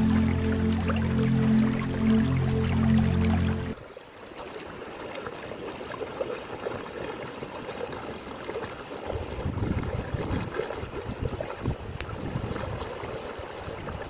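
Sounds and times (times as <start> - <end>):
water rushing: 0.0 - 14.0
wind rumbling on microphone: 9.1 - 14.0.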